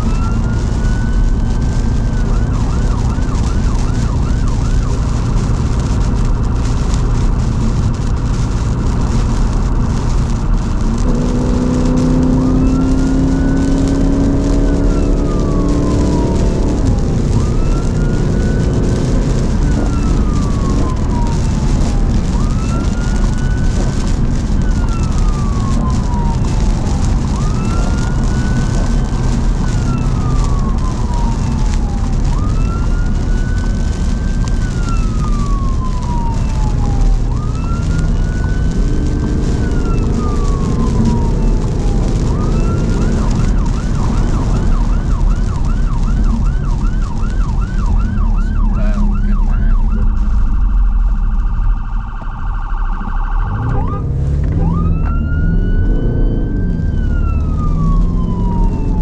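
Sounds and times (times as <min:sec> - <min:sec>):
emergency siren yelp and wail: 0:00.0 - 0:59.0
tyre noise on wet road: 0:00.0 - 0:59.0
car engine accelerating: 0:05.0 - 0:52.4, 0:53.0 - 0:59.0.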